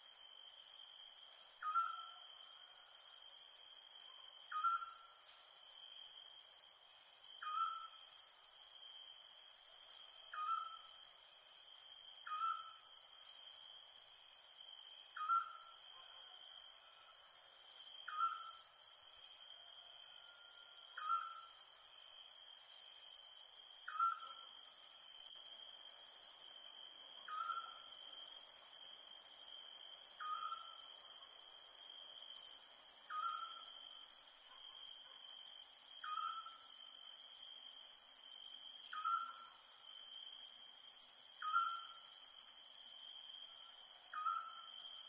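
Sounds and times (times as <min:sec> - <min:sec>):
crickets chirping: 0:00.0 - 0:45.0
night bird calling: 0:01.6 - 0:02.2, 0:04.1 - 0:05.1, 0:07.4 - 0:08.0, 0:10.3 - 0:11.0, 0:12.2 - 0:12.8, 0:15.1 - 0:16.2, 0:18.1 - 0:18.6, 0:20.9 - 0:21.5, 0:23.8 - 0:24.5, 0:27.2 - 0:27.9, 0:30.2 - 0:30.7, 0:33.1 - 0:33.7, 0:36.0 - 0:36.6, 0:38.9 - 0:39.6, 0:41.4 - 0:42.0, 0:44.1 - 0:44.6.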